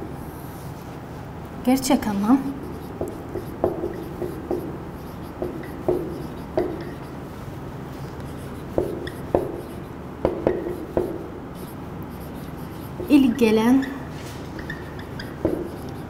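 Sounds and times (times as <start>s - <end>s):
marker pen tapping on whiteboard: 3.0s - 7.1s, 8.7s - 11.3s, 14.6s - 16.0s.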